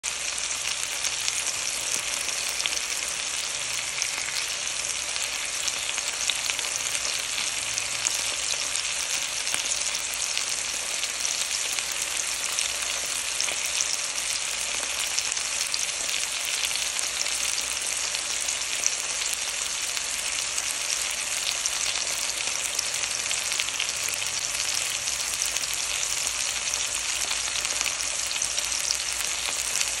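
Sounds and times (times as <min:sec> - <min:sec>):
chicken sizzling in oil: 0:00.0 - 0:30.0
oil popping and crackling: 0:00.5 - 0:15.8.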